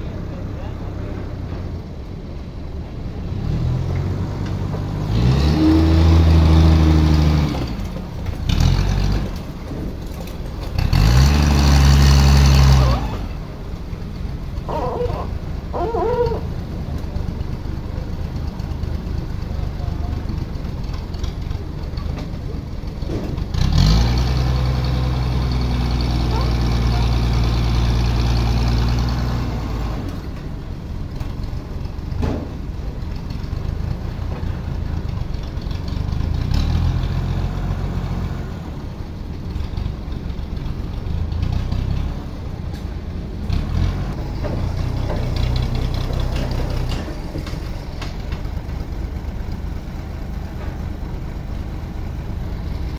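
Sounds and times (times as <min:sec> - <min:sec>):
forklift engine running: 0:00.0 - 0:52.9.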